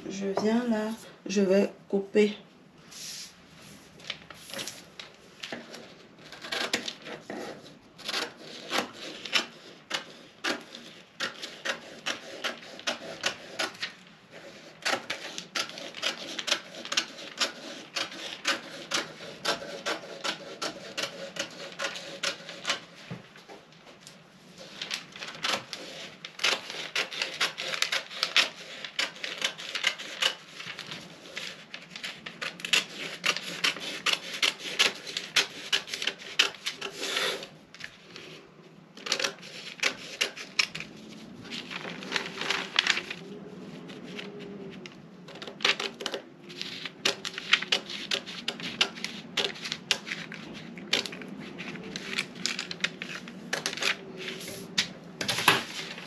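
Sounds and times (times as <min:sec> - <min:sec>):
paper rustling: 0:02.9 - 0:38.4, 0:39.0 - 0:56.0
scissors snipping paper: 0:05.4 - 0:22.9, 0:24.6 - 0:37.5, 0:39.0 - 0:40.9, 0:44.1 - 0:56.0.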